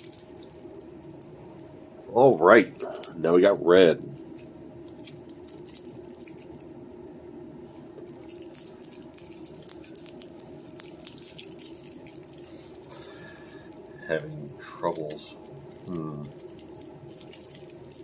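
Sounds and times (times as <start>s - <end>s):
plastic wrap crinkling: 0.0s - 1.7s, 2.4s - 6.8s, 8.1s - 18.0s
faint hum: 0.0s - 18.0s.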